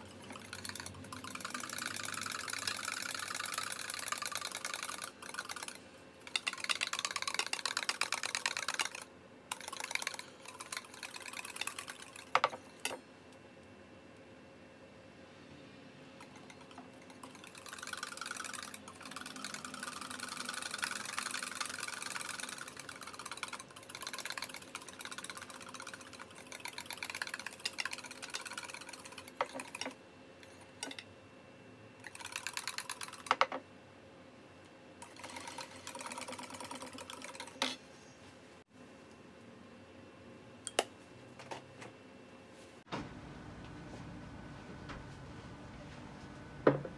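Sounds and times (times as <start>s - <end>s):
whisk beating in metal bowl: 0.0s - 9.0s, 9.6s - 12.6s, 16.2s - 30.0s.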